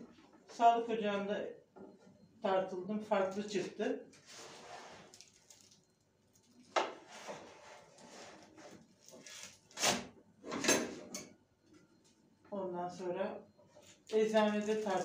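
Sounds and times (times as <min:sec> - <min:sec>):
wooden spatula scraping a pan: 0:04.3 - 0:05.1, 0:07.0 - 0:08.8.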